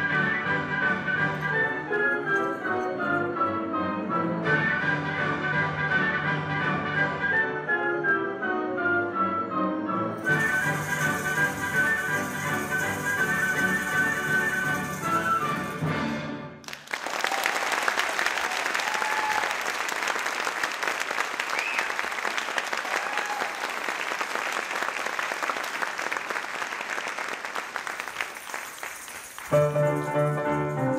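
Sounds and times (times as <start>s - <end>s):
piano music: 0.0s - 16.4s, 29.4s - 30.9s
audience applauding: 16.6s - 30.0s.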